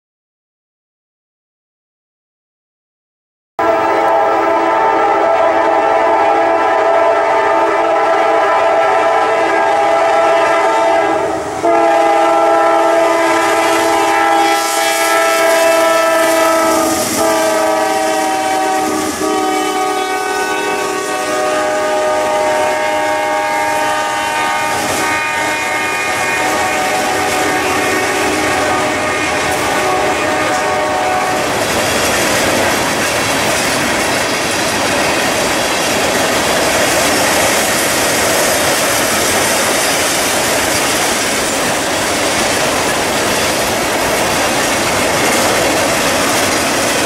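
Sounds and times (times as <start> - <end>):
locomotive air horn blasts: 3.6 - 31.6
freight cars rolling on rails: 11.4 - 47.0.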